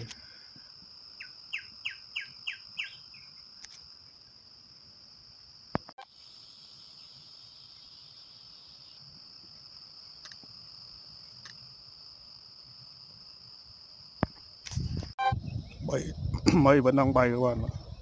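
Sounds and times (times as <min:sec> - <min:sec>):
high-pitched insect trill: 0:00.0 - 0:18.0
bird chirping: 0:01.2 - 0:03.6.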